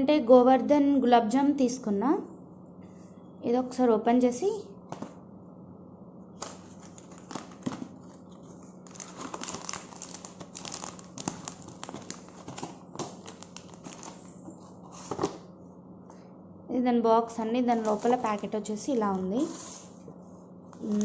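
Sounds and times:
foil crinkling and rustling: 6.4s - 15.4s, 17.7s - 18.6s, 20.8s - 21.0s.

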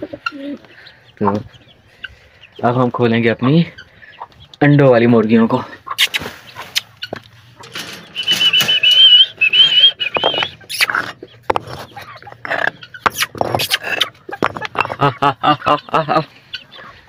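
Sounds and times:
warbling whistle: 8.2s - 10.6s
bricks knocking and scraping: 10.1s - 15.1s.

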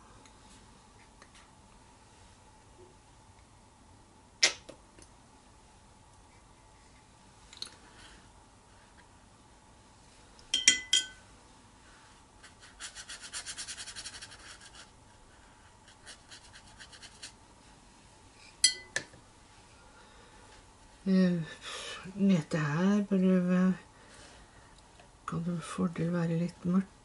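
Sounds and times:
brush clinking on hard dish: 10.5s - 11.2s
brush scrubbing on paper: 12.4s - 17.4s.

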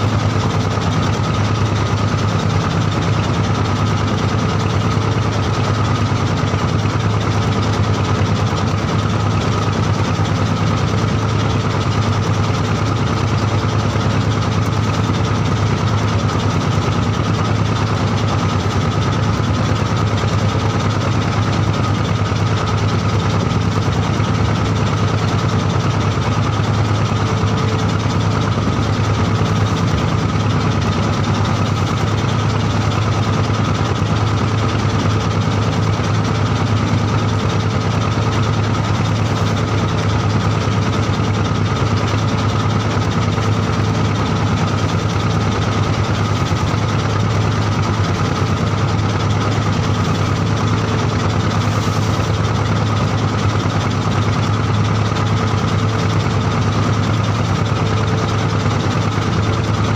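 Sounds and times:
boat engine droning: 0.0s - 59.9s.

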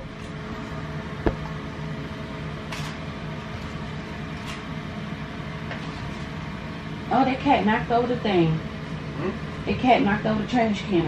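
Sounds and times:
sharp knock: 1.2s - 1.5s.

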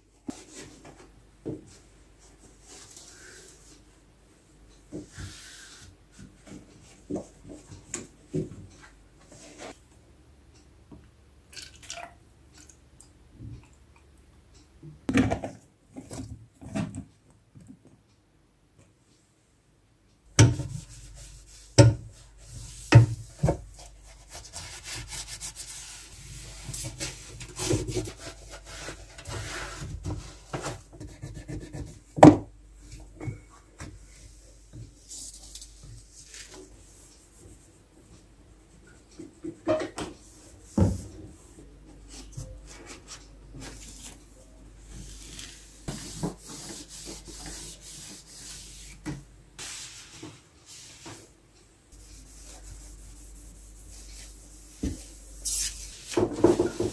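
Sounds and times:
sponge scrubbing dishwasher tub: 20.5s - 30.3s, 45.0s - 49.0s, 52.0s - 56.9s.

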